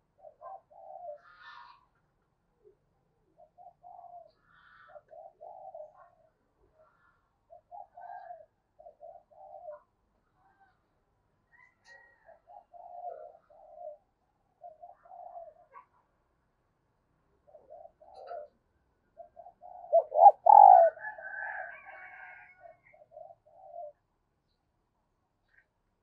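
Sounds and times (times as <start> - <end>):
dove cooing: 0.0 - 1.8, 2.6 - 6.4, 7.5 - 10.0, 11.6 - 15.9, 17.3 - 24.1.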